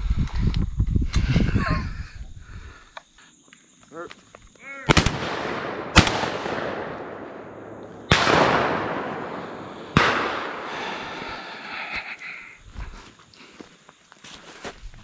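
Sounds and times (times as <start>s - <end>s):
shotgun shots with echo: 4.9s - 10.8s.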